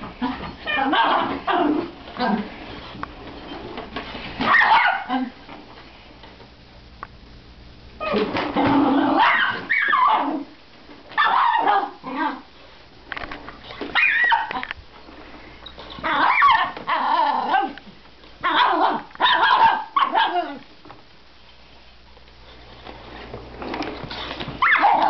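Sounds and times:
dog barking: 0:04.5 - 0:05.2, 0:09.2 - 0:10.3, 0:11.2 - 0:12.0, 0:18.4 - 0:20.6, 0:24.6 - 0:25.0.

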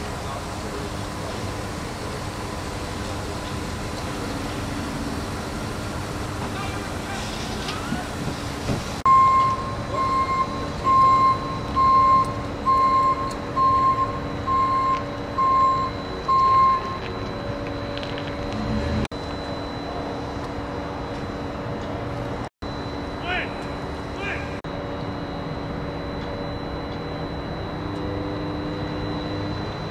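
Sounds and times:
steady background hum: 0:00.0 - 0:29.9
reversing alarm beeping: 0:09.0 - 0:29.9.

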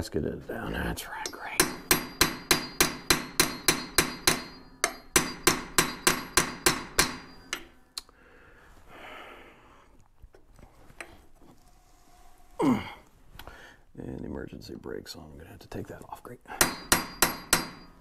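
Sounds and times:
hammer tapping metal on metal: 0:01.2 - 0:07.8, 0:16.6 - 0:18.0.

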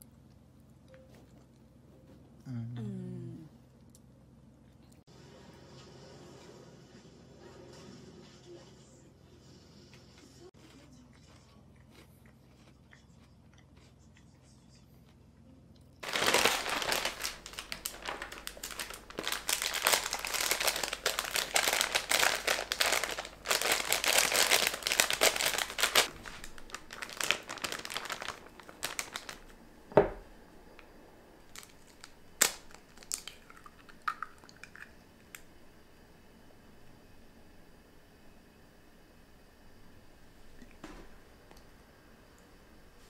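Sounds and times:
plastic bag crinkling and rustling: 0:16.0 - 0:29.6, 0:31.5 - 0:33.5.

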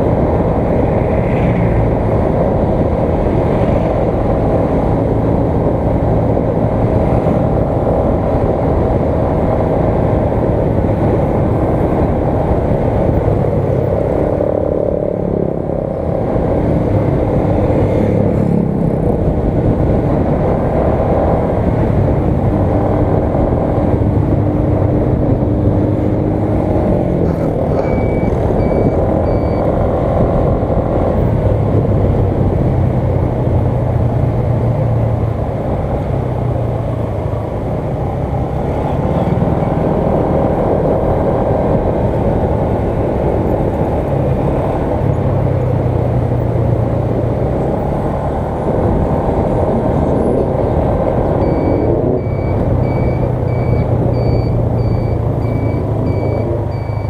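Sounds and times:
motorcycle engine while riding: 0:00.0 - 0:57.0
road and wind noise: 0:00.0 - 0:57.0
short electronic beeps: 0:27.6 - 0:29.7, 0:51.4 - 0:57.0.

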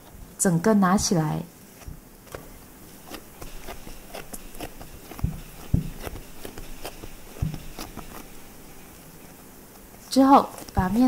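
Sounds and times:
hands kneading dough in bowl: 0:00.0 - 0:11.0
louder thumps: 0:05.1 - 0:08.1.

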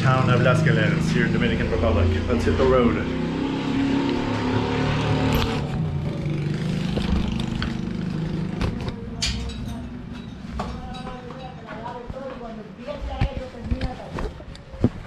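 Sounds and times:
vehicle engine running: 0:00.0 - 0:09.2.

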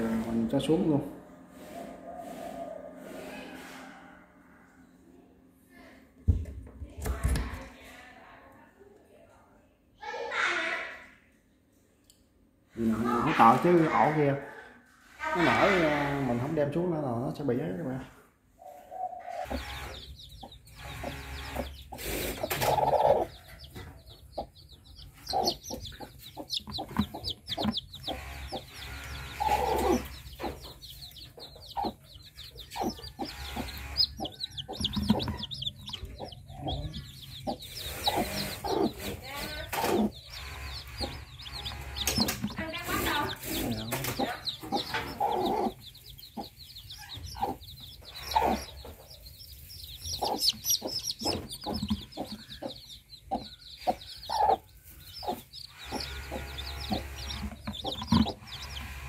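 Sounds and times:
chicks peeping: 0:12.8 - 0:14.4, 0:18.6 - 0:59.0
lower clucking calls: 0:19.0 - 0:59.0.

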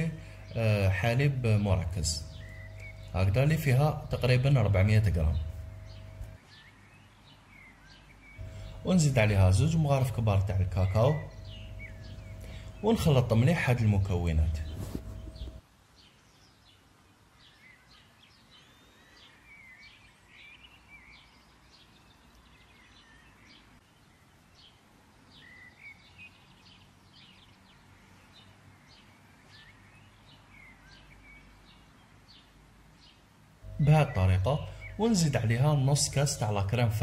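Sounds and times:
bird chirps and twitters: 0:00.0 - 0:16.8, 0:33.0 - 0:37.0.

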